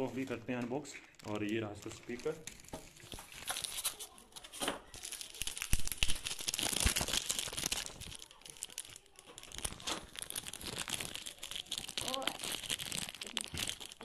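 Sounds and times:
plastic bag crinkling: 0.0 - 14.0.

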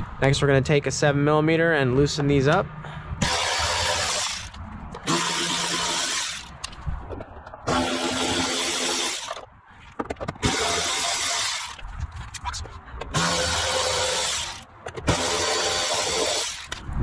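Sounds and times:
electric ratchet running: 3.2 - 6.6, 7.7 - 9.4, 10.4 - 11.8, 13.1 - 16.8.

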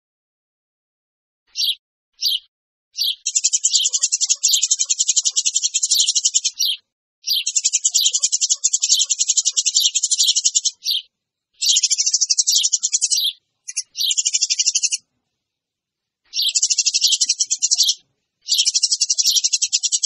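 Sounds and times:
sparrow chirping: 1.5 - 15.1, 16.2 - 20.0.

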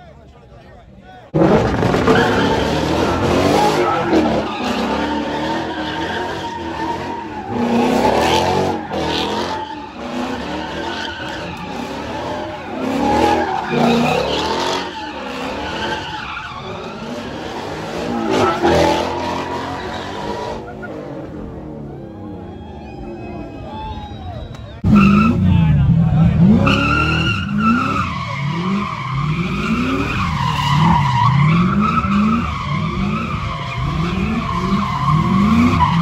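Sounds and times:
tyres squealing and skidding: 1.3 - 36.0
car engine revving high: 24.8 - 36.0.

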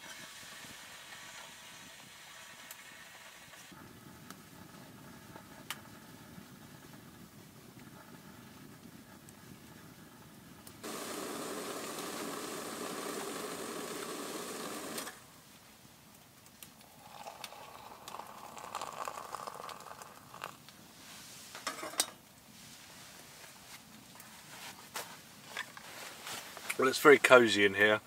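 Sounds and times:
steady hiss: 0.0 - 6.6, 10.6 - 28.0
metal cookware scraping and clinking: 21.6 - 22.2.

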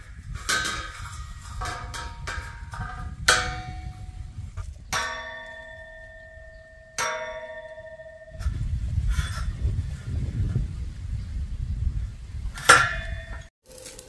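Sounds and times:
steel tube struck and ringing: 0.0 - 10.1, 12.6 - 13.5.

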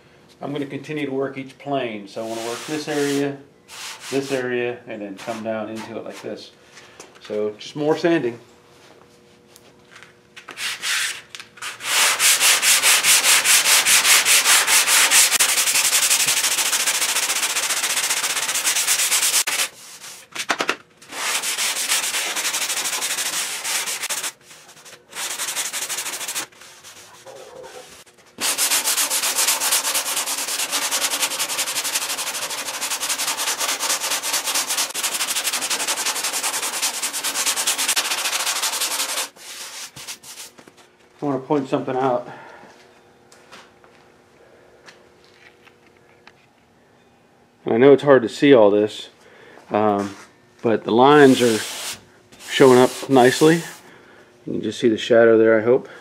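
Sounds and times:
hand sanding rasping strokes: 2.2 - 4.5, 10.6 - 20.3, 21.1 - 40.6, 51.1 - 53.8.

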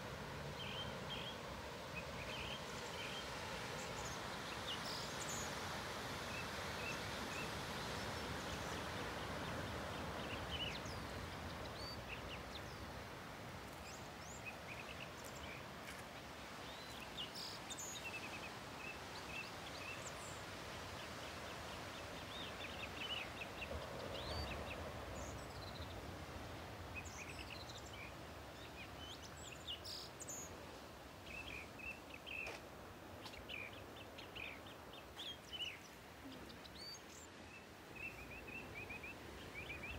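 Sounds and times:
small birds chirping: 26.9 - 39.9.

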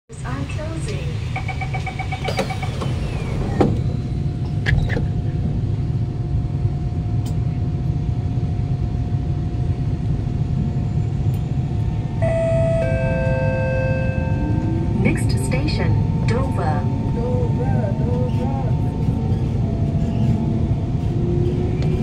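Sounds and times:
low rumble of moving train: 0.1 - 22.0
train motor whine: 0.9 - 5.0, 12.1 - 22.0
beeps: 1.4 - 2.8, 12.2 - 16.9.

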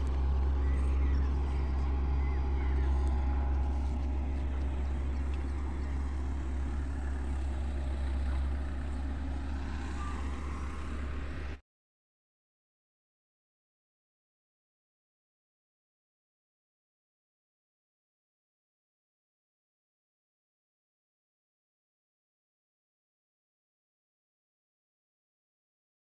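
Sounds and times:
diesel engine droning: 0.0 - 11.6.

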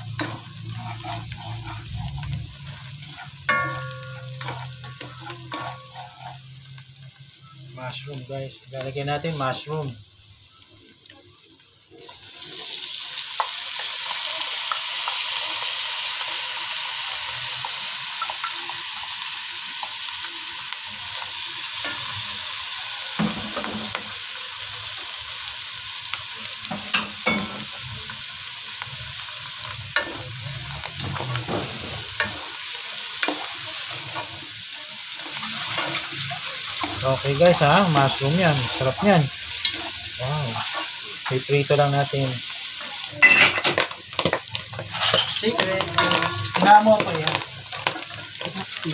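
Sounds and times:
wooden spatula scraping a pot: 0.0 - 6.6, 35.2 - 41.4
mushrooms sizzling in butter: 0.0 - 48.9.

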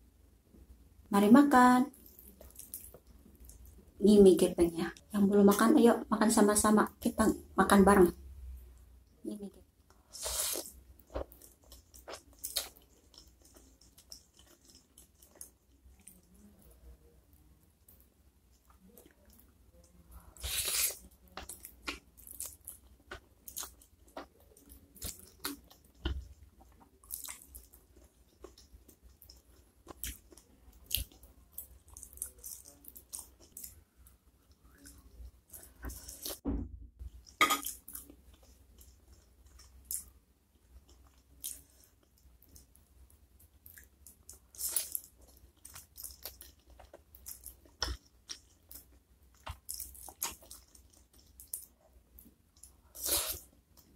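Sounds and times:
chewing and crunching: 10.0 - 16.8, 17.8 - 36.4, 43.4 - 53.9.

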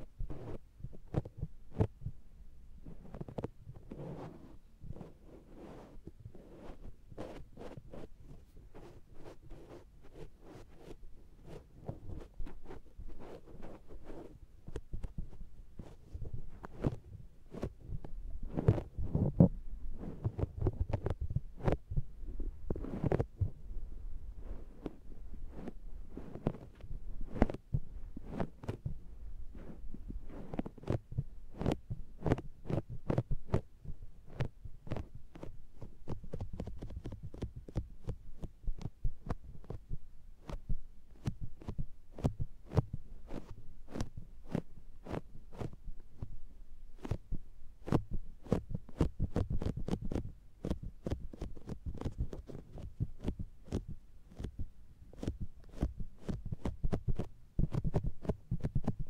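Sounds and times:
sponge patting on microphone: 0.2 - 2.0, 3.1 - 23.6, 24.4 - 46.3, 47.0 - 59.0
muffled low thumps: 20.6 - 26.2.

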